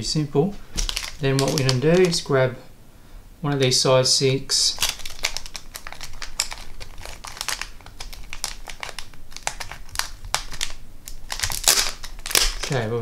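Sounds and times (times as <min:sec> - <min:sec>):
plastic packet crinkling: 0:00.7 - 0:02.4, 0:04.6 - 0:12.9.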